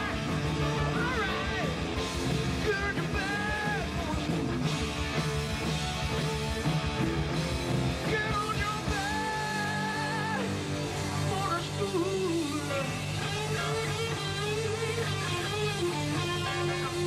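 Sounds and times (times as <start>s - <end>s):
electric guitar bending notes: 0.0s - 17.0s
live rock band playing: 0.0s - 17.0s.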